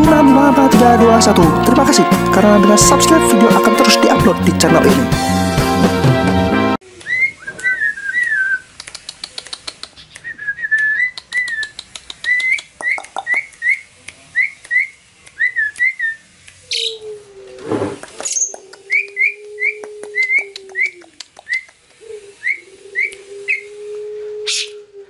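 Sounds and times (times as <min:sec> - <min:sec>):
quick clicks: 0:08.7 - 0:13.7.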